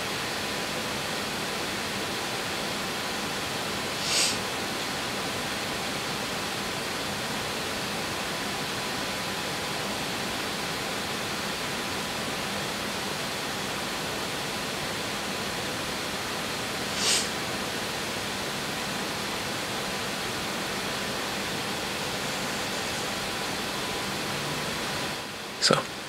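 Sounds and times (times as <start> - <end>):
steady hiss: 3.7 - 4.8, 15.2 - 25.8.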